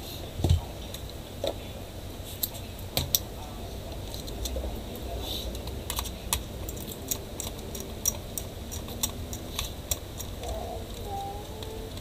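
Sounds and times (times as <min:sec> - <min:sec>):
laptop parts clicking and knocking: 0:05.6 - 0:11.0.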